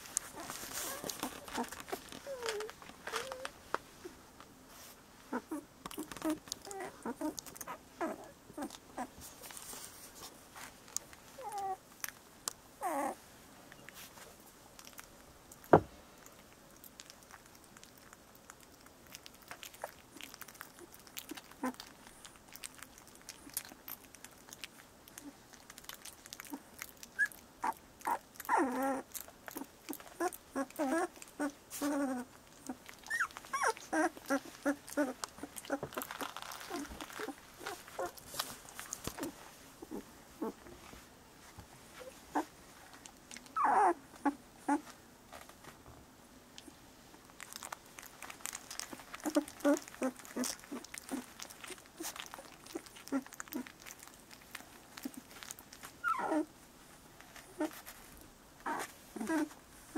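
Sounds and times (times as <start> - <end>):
small clicks and shuffles: 0.0 - 6.8
puppies squeaking and whimpering: 0.3 - 3.5, 5.3 - 9.1, 11.4 - 11.8, 12.8 - 13.2, 26.5 - 38.2, 43.5 - 44.9, 48.5 - 53.7, 56.0 - 56.5, 58.7 - 59.6.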